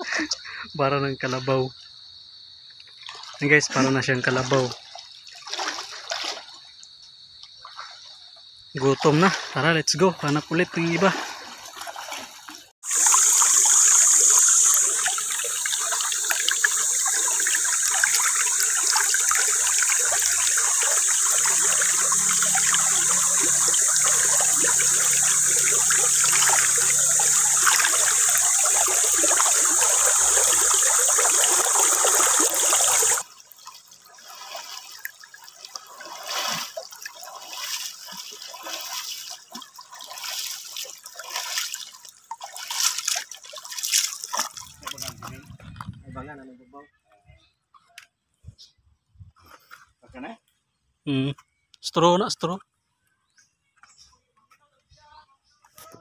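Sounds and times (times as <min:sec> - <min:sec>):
feet wading through water: 0:02.9 - 0:45.6
creek water rushing: 0:09.0 - 0:45.3.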